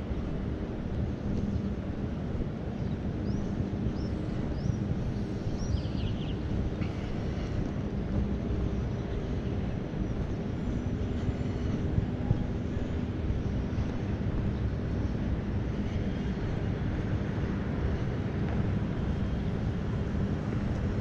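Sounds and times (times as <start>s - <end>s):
distant city traffic rumble: 0.0s - 21.0s
wind on microphone: 0.0s - 21.0s.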